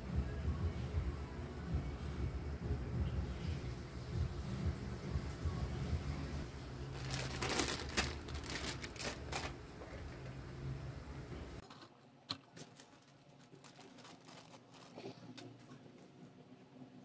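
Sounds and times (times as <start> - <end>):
plastic clicking and rustling: 7.0 - 9.6, 11.6 - 15.7.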